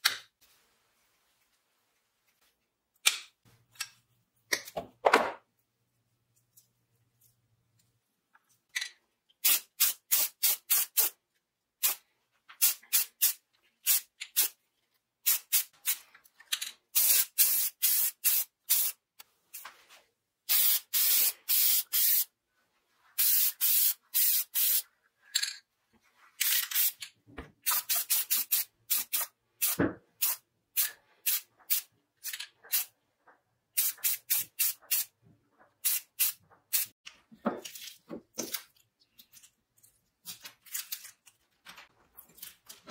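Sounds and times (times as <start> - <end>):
spray can hissing: 17.0 - 19.0, 20.5 - 22.3, 23.2 - 24.8, 33.8 - 35.1.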